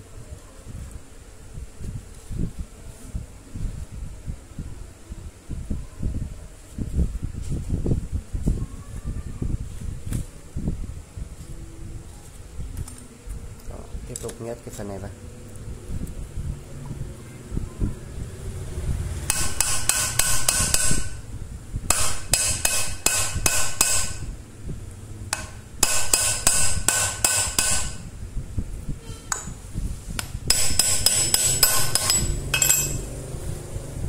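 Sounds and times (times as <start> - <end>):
metal-on-metal tapping: 19.3 - 21.2, 21.9 - 24.2, 25.3 - 28.0, 30.2 - 33.1.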